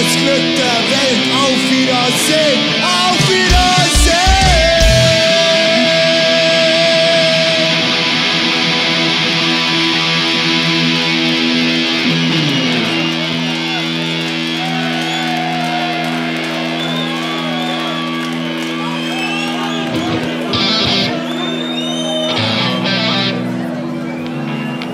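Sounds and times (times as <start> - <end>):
distorted electric guitars: 0.0 - 24.9
bass guitar chord: 2.8 - 5.4, 20.0 - 21.2, 22.4 - 23.8.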